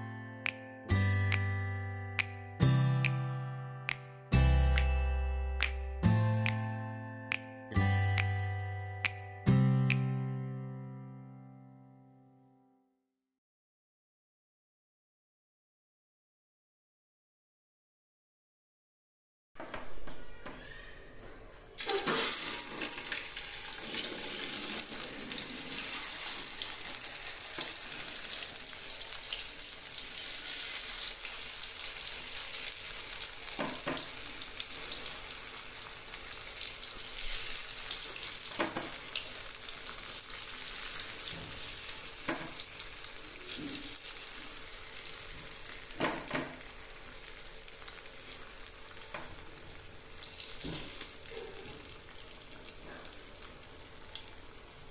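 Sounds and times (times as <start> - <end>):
deep-frying sizzle in oil: 21.8 - 54.9.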